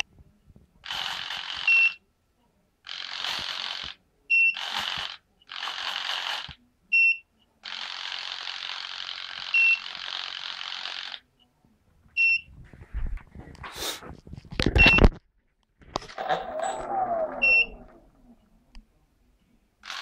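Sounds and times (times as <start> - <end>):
servos whirring: 16.0 - 18.5
short high beeps: 17.4 - 17.8.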